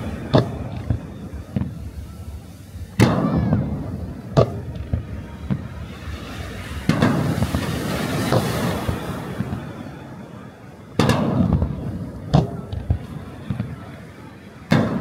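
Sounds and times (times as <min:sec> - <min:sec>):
firework shells booming: 0:00.0 - 0:09.8, 0:11.0 - 0:13.9, 0:14.7 - 0:15.0
small firework pops: 0:00.2 - 0:02.2, 0:02.8 - 0:05.9, 0:06.8 - 0:09.7, 0:11.0 - 0:13.8.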